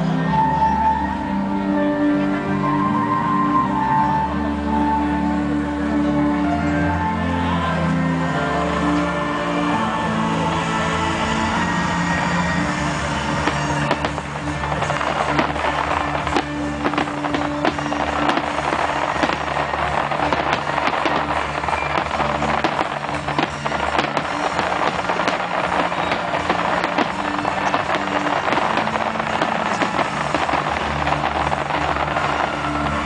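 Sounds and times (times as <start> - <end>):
music playing: 0.0 - 33.0
fireworks crackling and popping: 10.5 - 33.0.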